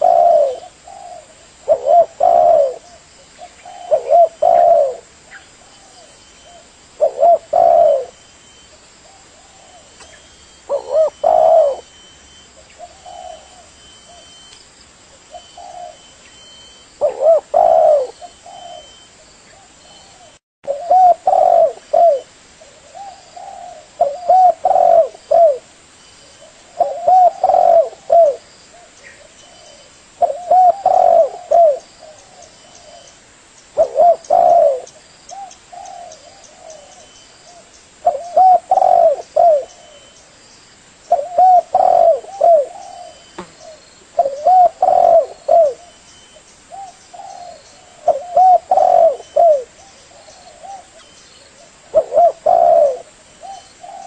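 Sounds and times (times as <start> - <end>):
dove cooing: 0.0 - 14.5, 15.2 - 25.7, 26.3 - 33.1, 33.8 - 40.2, 41.1 - 54.0.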